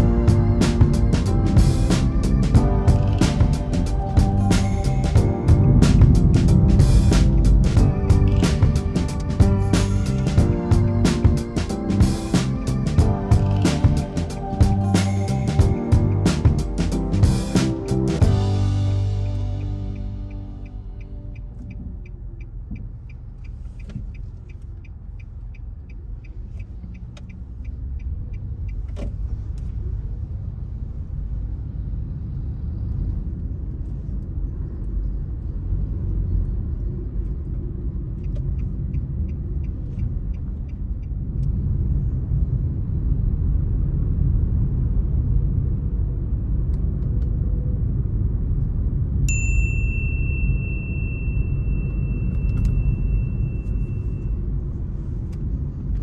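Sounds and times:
car engine and tyre rumble: 0.0s - 56.0s
light ticking: 19.3s - 29.0s
high-pitched beep: 49.6s - 54.5s.

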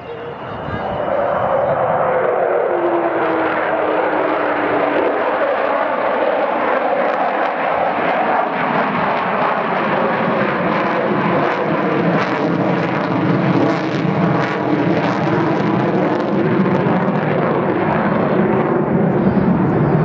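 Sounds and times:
jet engines roaring overhead: 0.0s - 20.0s.

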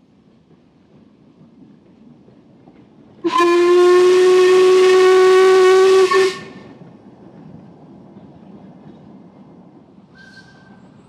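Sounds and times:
train running past: 0.0s - 11.0s
steam locomotive whistle: 3.2s - 6.7s.

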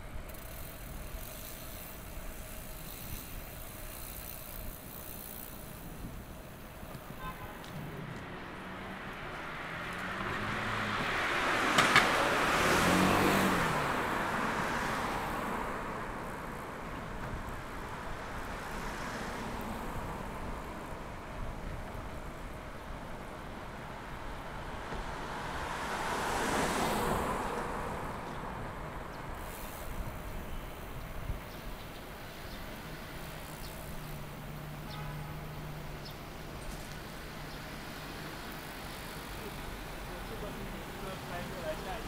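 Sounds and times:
city street traffic: 0.0s - 42.0s
vehicle passing close: 7.8s - 16.5s, 24.4s - 30.3s.

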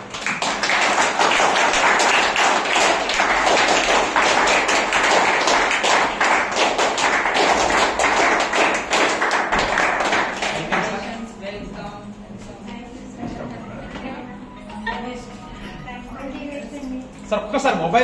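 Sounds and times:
crowd clapping rhythmically: 0.0s - 11.1s.

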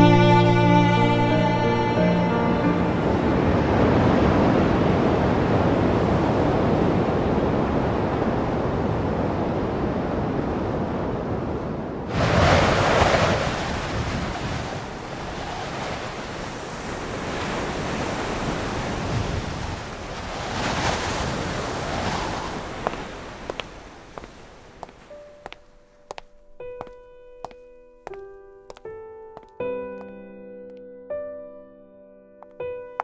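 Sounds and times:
rushing sea: 0.0s - 25.2s
wind: 0.0s - 31.4s.

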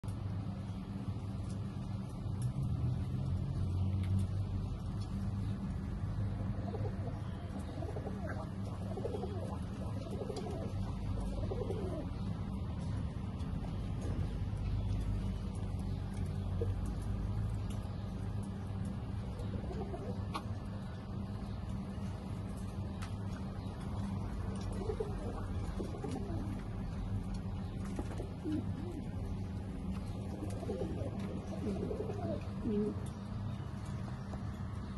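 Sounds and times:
steady low hum: 0.0s - 34.9s
pigeons cooing: 6.2s - 17.7s, 19.1s - 21.8s, 22.5s - 33.4s.

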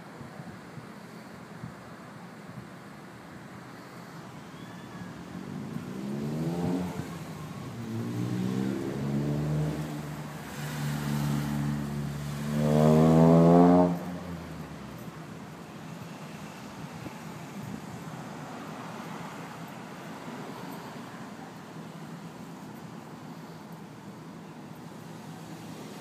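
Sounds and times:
car engine accelerating through gears: 5.4s - 14.6s.

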